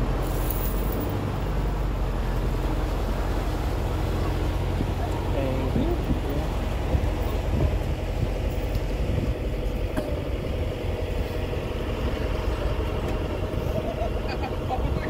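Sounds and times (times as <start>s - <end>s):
ferry engine rumble: 0.0s - 15.0s.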